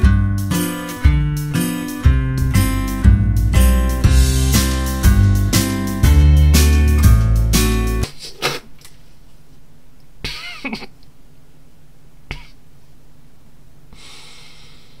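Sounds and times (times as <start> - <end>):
man's stifled laughter: 10.2 - 11.0
breathy exhale: 13.9 - 15.0.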